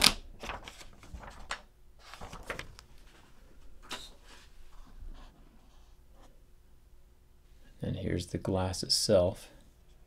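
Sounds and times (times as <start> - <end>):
tissue paper rustling: 0.4 - 4.6.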